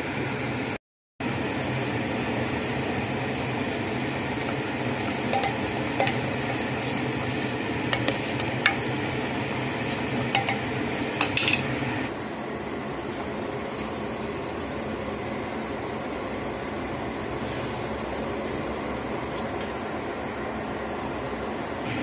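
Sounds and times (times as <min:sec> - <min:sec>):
broth bubbling hum: 0:00.5 - 0:17.4
spoon clinking on enamel pot: 0:05.1 - 0:06.7, 0:07.9 - 0:09.0, 0:10.3 - 0:11.7.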